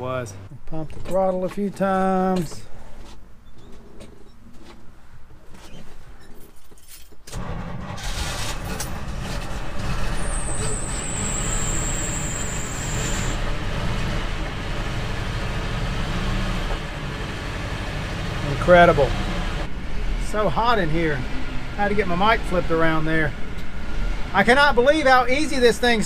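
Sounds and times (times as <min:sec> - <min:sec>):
truck engine starting and running: 0:07.3 - 0:26.0
thin high whistle: 0:10.1 - 0:13.4.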